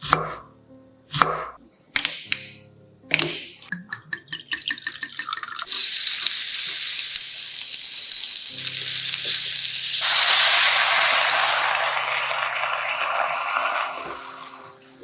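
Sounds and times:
vegetables sizzling in a frying pan: 0:05.7 - 0:15.0.

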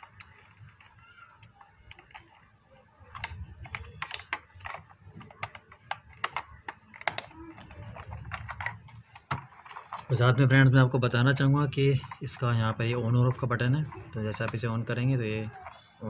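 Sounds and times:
plastic clicks and taps: 0:00.0 - 0:10.1, 0:13.3 - 0:14.9.

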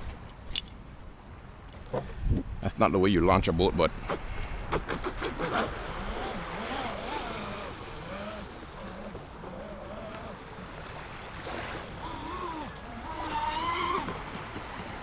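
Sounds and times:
waves: 0:00.0 - 0:15.0
wind: 0:00.0 - 0:15.0
electric motor whine: 0:06.0 - 0:10.5.

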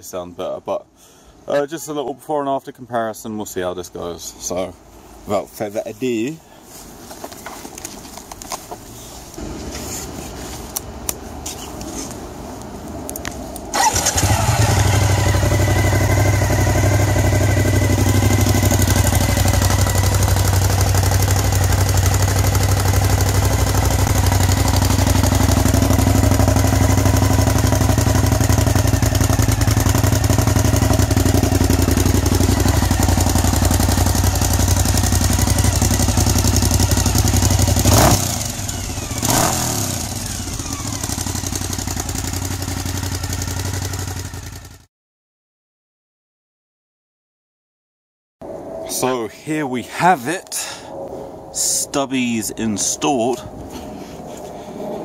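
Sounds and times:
sharp exhaust cracks: 0:13.1 - 0:44.1
motorcycle engine running: 0:13.8 - 0:44.9.

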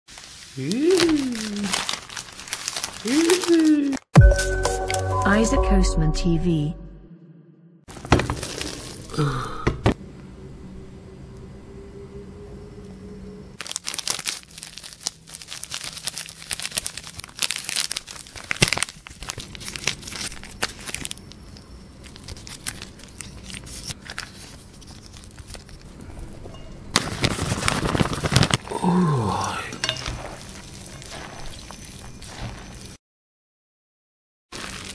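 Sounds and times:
plastic sachets crinkling and tearing: 0:00.1 - 0:04.1, 0:07.9 - 0:09.2, 0:13.6 - 0:26.0, 0:27.0 - 0:33.0, 0:34.5 - 0:34.9
noodles mixed in glass bowl: 0:29.6 - 0:33.0.

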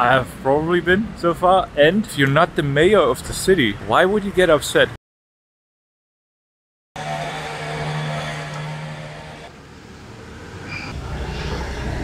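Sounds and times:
deep rumble of traffic: 0:07.0 - 0:12.0
motor vehicle humming: 0:07.0 - 0:12.0.

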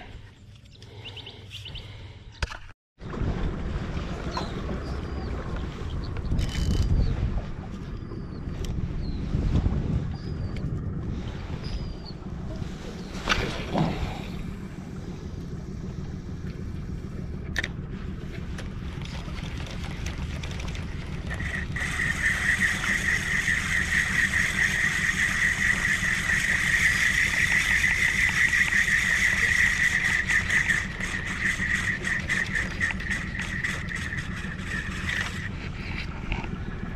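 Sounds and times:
wind and water noise: 0:00.0 - 0:36.9
electric trolling motor whine: 0:03.1 - 0:36.9
fishing rod cast swish: 0:12.8 - 0:14.4.

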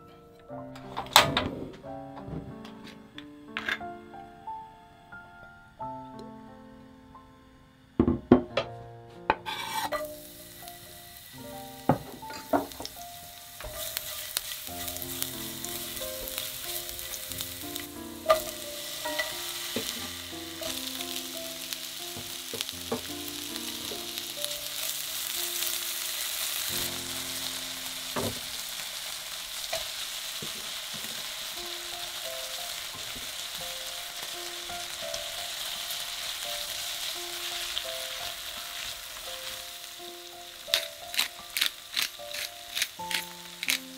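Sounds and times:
food sizzling in a frying pan: 0:09.5 - 0:43.9.

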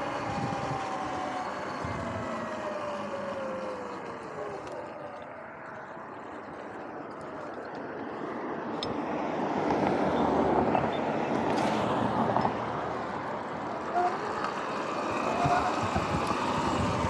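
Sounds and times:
wind on microphone: 0:00.0 - 0:02.5, 0:15.1 - 0:17.0
dirt bike tyre noise: 0:10.7 - 0:17.0.

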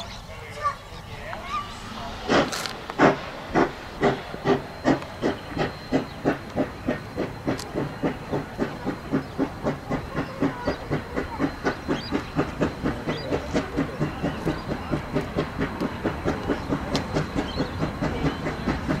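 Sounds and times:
steam locomotive exhaust chuffs: 0:00.0 - 0:19.0
steady hiss of steam: 0:01.0 - 0:19.0.

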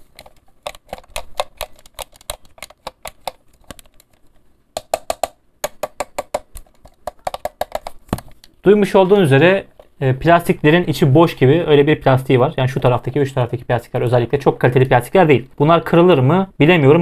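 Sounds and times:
fingers tapping on plastic: 0:00.0 - 0:04.1, 0:04.8 - 0:08.3.

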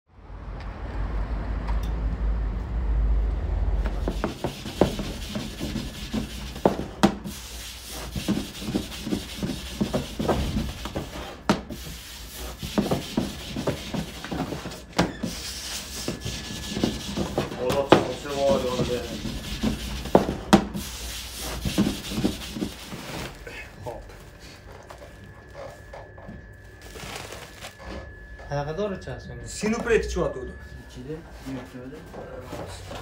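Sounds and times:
dough rubbing and patting: 0:03.8 - 0:23.4
rolling pin on wooden table: 0:03.9 - 0:23.0.

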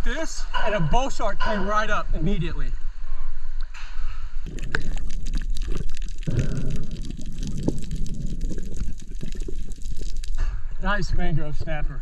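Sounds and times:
sharp clicks and ticks: 0:04.4 - 0:10.6
muffled underwater rush: 0:04.4 - 0:10.9.

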